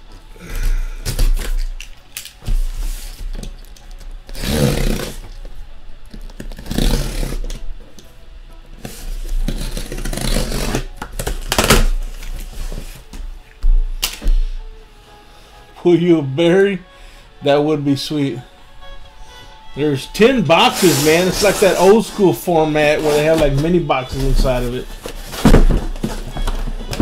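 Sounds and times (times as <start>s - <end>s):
background music: 0.0s - 27.0s
cardboard being cut and torn: 4.3s - 5.4s, 6.3s - 7.6s, 8.9s - 12.8s, 20.6s - 22.2s, 22.9s - 26.3s.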